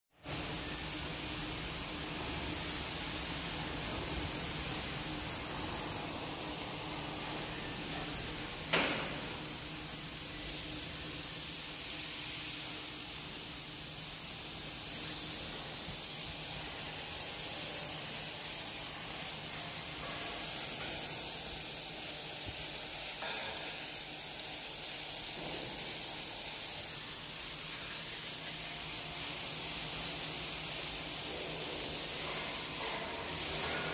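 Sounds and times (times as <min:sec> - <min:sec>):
industrial shed hiss: 0:00.2 - 0:33.9.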